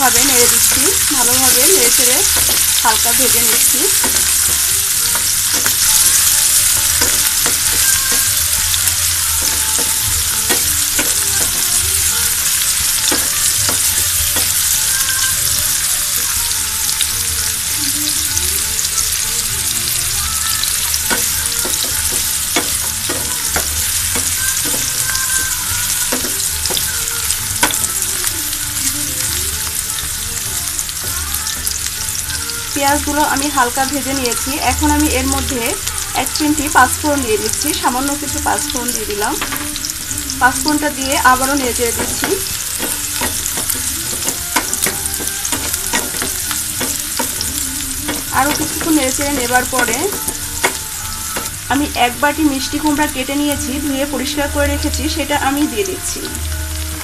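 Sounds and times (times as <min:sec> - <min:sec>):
onions sizzling in hot oil: 0:00.0 - 0:57.0.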